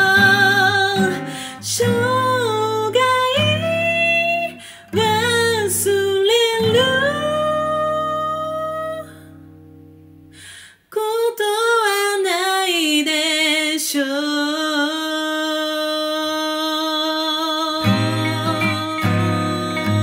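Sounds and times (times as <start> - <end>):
woman singing with vibrato: 0.0 - 9.3, 10.9 - 20.0
acoustic guitar played lightly: 0.0 - 10.5, 16.6 - 20.0
soft breath: 1.2 - 1.6, 4.5 - 5.0, 10.3 - 10.9.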